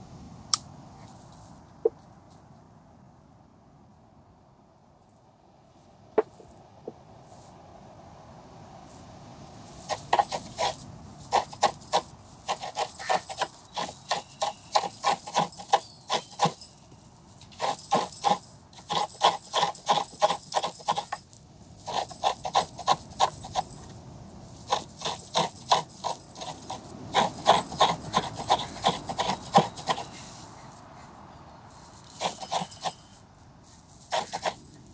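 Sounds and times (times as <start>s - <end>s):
metal bangles jingling: 9.7s - 31.0s, 31.6s - 34.9s.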